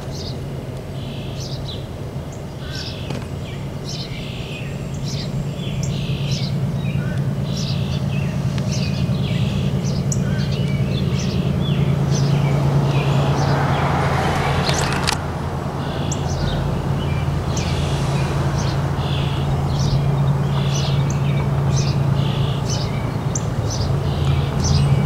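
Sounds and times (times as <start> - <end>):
songbirds chirping: 0.0 - 25.0
rising hiss: 16.3 - 25.0.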